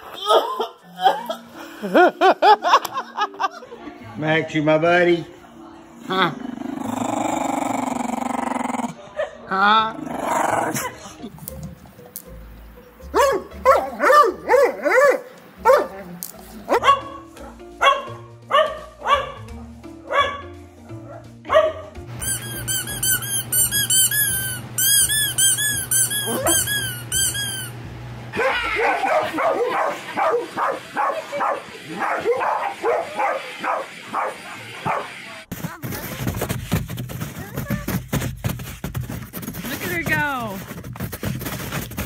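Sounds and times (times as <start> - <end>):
background music: 0.0 - 24.9
dog barking: 13.1 - 16.0, 16.7 - 21.9, 28.4 - 35.2
rubber squeaky toy squeaking: 22.2 - 27.8.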